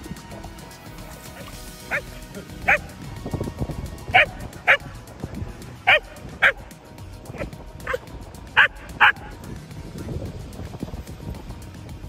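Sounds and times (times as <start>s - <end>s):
dog barking: 1.4s - 2.9s, 4.1s - 5.0s, 5.8s - 6.7s, 7.4s - 8.0s, 8.6s - 9.3s.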